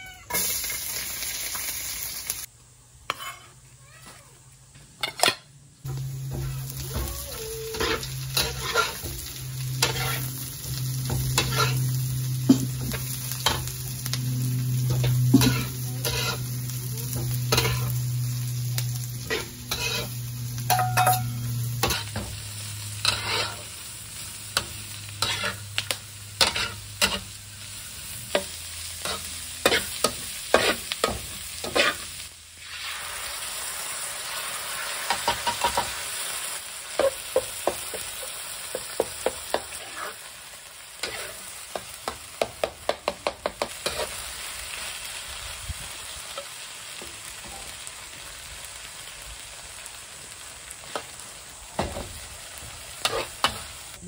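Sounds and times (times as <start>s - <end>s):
vegetables sizzling in wok: 0.0s - 54.0s
metal utensil scraping wok: 3.1s - 3.6s, 5.0s - 32.8s, 34.7s - 40.4s, 41.0s - 42.2s, 43.6s - 44.8s, 52.6s - 54.0s
low steady hum: 5.8s - 27.9s.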